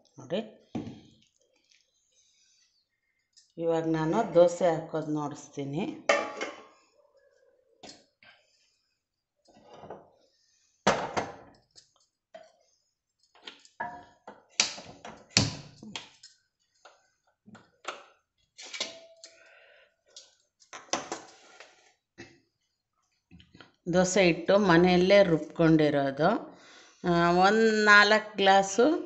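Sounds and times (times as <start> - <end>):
cookware clanking and knocking: 6.1 - 6.8, 13.8 - 14.2.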